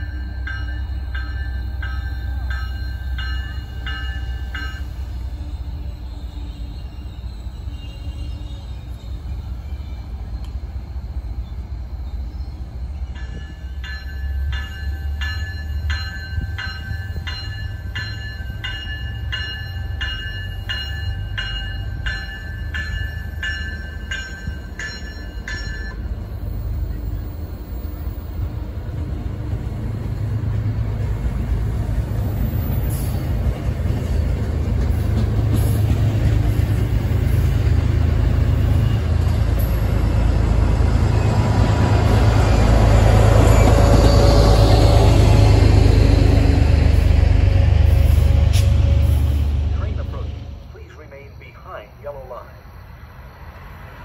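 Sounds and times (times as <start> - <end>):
train bell ringing: 0.0 - 9.2, 10.3 - 28.4
deep rumble of train: 0.0 - 54.0.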